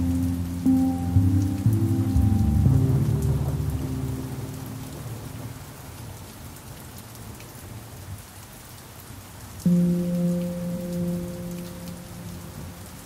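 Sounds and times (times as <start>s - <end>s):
steady rain: 0.0s - 13.0s
low pan drum note ringing: 0.7s - 4.6s.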